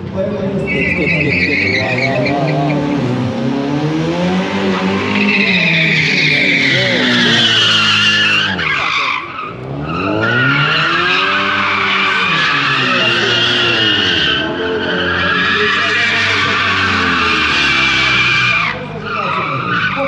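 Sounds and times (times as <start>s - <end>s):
tyres squealing: 0.5s - 3.1s, 4.7s - 20.0s
car engine revving hard: 0.7s - 20.0s.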